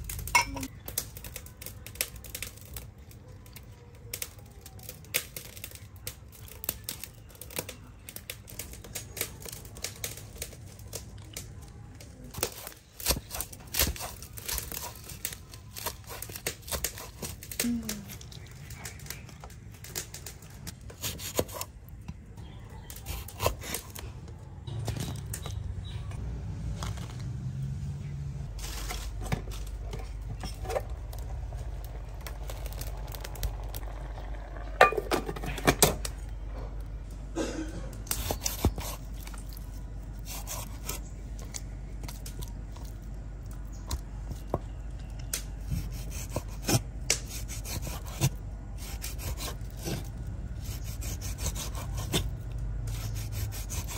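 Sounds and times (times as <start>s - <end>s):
low steady rumble of heating pot: 0.0s - 21.0s, 29.4s - 53.9s.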